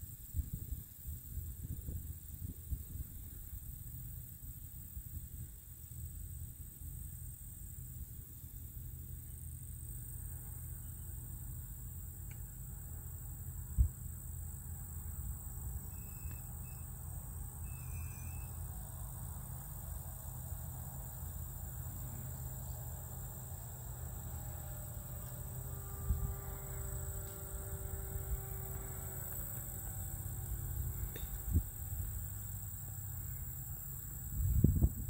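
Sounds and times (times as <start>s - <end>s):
wind rumbling on microphone: 0.0s - 5.6s, 26.0s - 32.8s, 34.2s - 35.0s
high insect drone: 0.0s - 35.0s
distant model plane motor hum: 14.6s - 34.6s.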